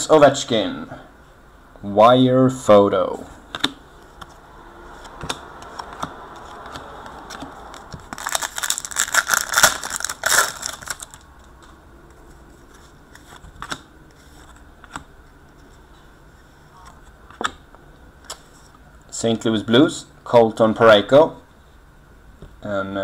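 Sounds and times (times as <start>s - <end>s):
card packaging crinkling: 6.6s - 11.3s.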